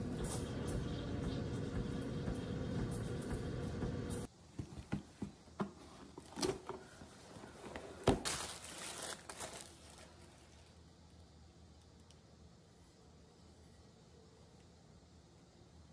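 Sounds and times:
paper crinkling: 7.7 - 10.9.

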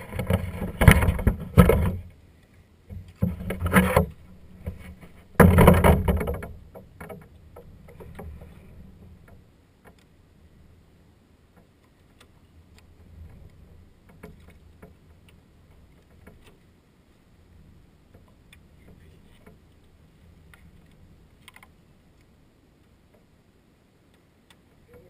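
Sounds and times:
light clicks and taps: 11.5 - 16.6, 18.1 - 19.9, 20.5 - 23.3.

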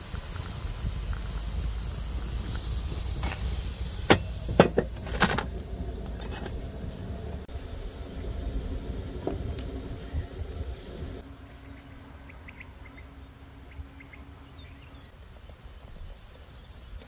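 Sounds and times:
hot water pouring into teapot: 0.0 - 6.6.

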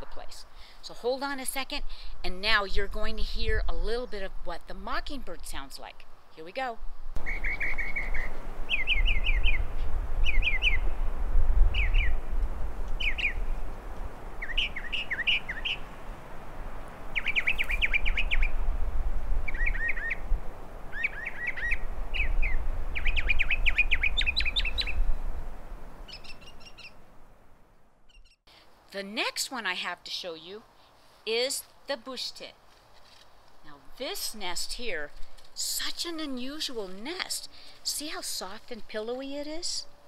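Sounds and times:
mockingbird singing: 7.2 - 10.8, 11.8 - 12.2, 13.0 - 13.4, 14.4 - 15.9, 17.1 - 18.6, 19.5 - 20.2, 20.9 - 25.0, 26.1 - 27.0.

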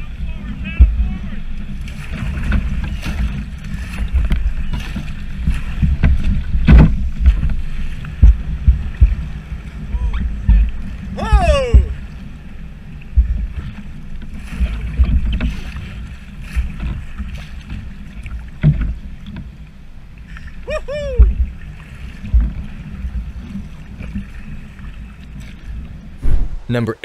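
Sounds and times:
water lapping against a hull: 0.0 - 26.9
low thumps: 5.4 - 12.0, 26.2 - 27.0.

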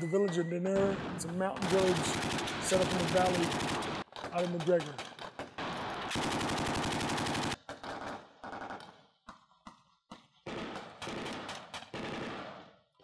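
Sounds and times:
machine gun firing: 0.8 - 8.8, 10.5 - 12.8.

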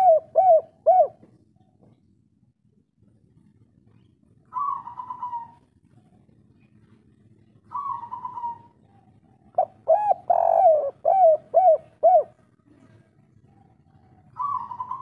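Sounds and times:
dove cooing: 0.0 - 1.4, 4.4 - 6.2, 7.6 - 15.0.

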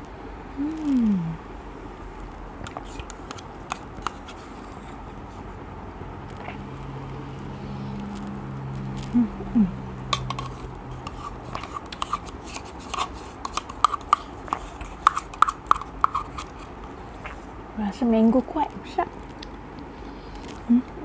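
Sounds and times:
low steady hum: 0.0 - 21.0
spoon scraping plastic cup: 2.7 - 5.0, 10.2 - 17.5.

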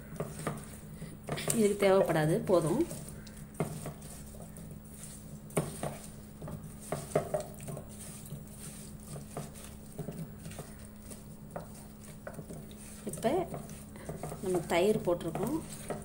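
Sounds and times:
hands mixing wet food: 0.0 - 16.0
pieces clacking against metal bowl: 9.0 - 16.0.

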